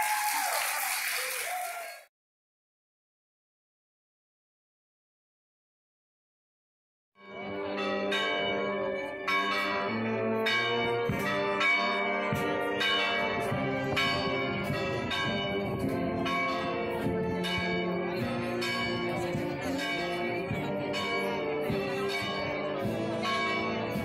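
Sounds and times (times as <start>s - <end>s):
church bells ringing: 7.2s - 24.0s.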